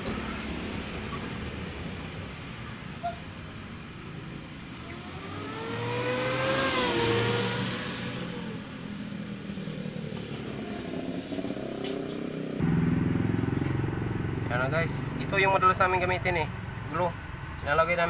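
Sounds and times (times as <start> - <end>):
vehicle engine accelerating past: 4.0 - 15.8.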